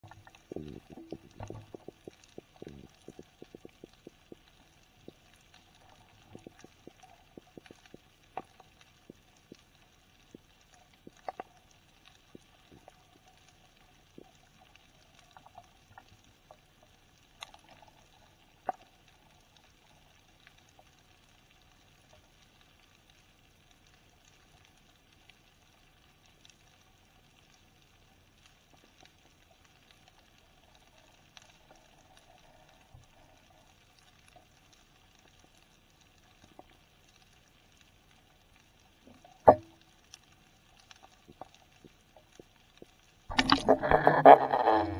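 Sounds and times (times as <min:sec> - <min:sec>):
underwater clicks: 0:00.0 - 0:11.6, 0:39.1 - 0:40.2, 0:40.8 - 0:44.9
faint underwater hiss: 0:00.0 - 0:44.9
low underwater knocks: 0:39.5 - 0:39.7.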